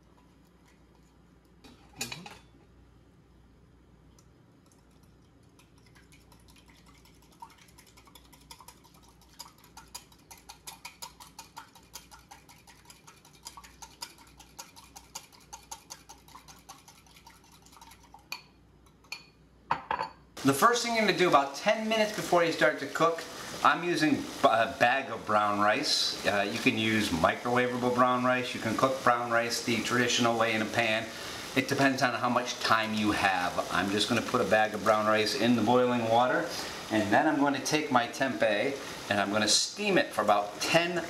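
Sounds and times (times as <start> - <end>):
whisk clicking against glass bowl: 4.7 - 19.3.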